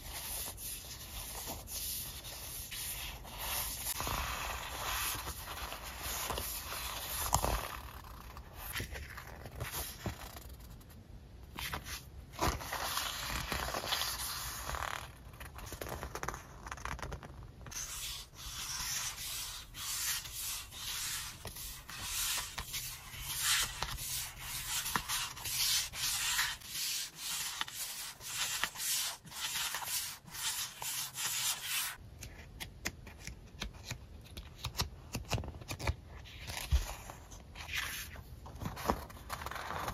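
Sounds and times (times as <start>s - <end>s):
paper sheets rubbing and sliding: 11.6s - 32.0s.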